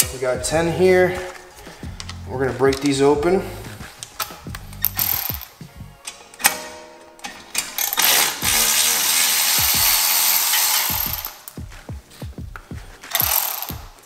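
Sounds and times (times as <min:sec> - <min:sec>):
sharp ratchet clicks: 0:04.0 - 0:05.5, 0:07.8 - 0:11.5, 0:13.1 - 0:14.0
electric ratchet running: 0:04.8 - 0:05.5, 0:07.8 - 0:11.5, 0:13.1 - 0:14.0.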